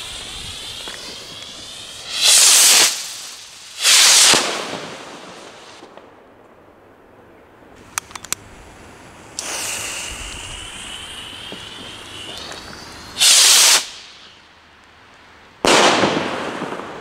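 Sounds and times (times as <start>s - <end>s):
rocket launching whoosh: 0.0s - 5.8s, 9.4s - 14.3s
firework bang echoing: 0.0s - 6.0s, 15.6s - 17.0s
firework crack with hiss: 0.0s - 6.0s, 7.8s - 14.5s, 15.6s - 17.0s.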